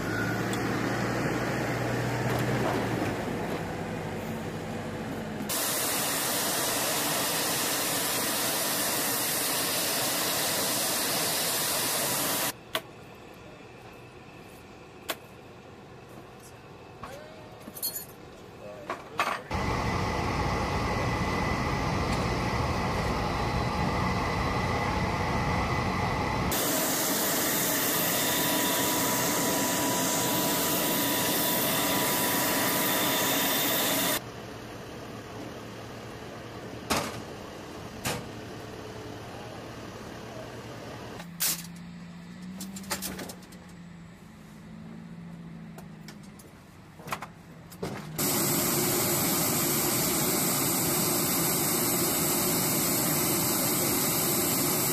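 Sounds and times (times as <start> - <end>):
helicopter engine and turbine noise: 4.8 - 17.7, 19.5 - 41.2, 48.2 - 54.9
low wavering hum: 19.6 - 34.8.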